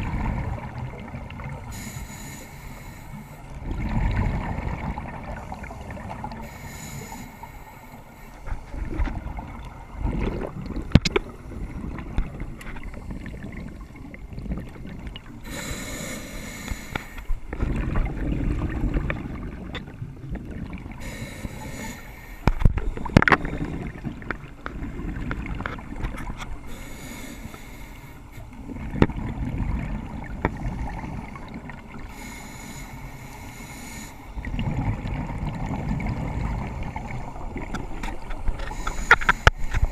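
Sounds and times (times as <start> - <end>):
exhaled air bubbling: 0.0 - 39.9
regulator breathing hiss: 1.7 - 3.5, 6.4 - 8.5, 15.4 - 17.3, 21.0 - 23.1, 26.7 - 28.4, 32.1 - 34.4, 38.7 - 39.9.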